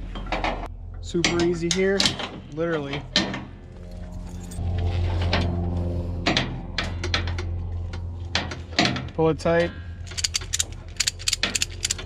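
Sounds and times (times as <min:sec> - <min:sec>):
steady low hum: 0:00.0 - 0:12.0
metallic clinks of strap hardware: 0:10.0 - 0:12.0.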